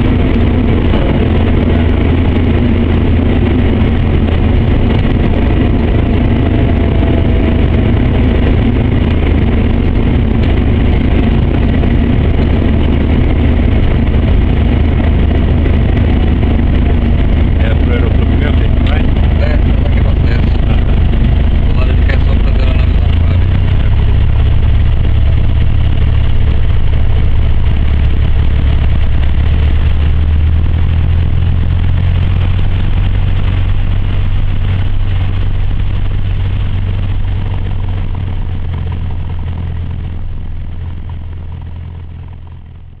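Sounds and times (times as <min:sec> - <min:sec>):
light aircraft engine and propeller: 0:00.0 - 0:43.0.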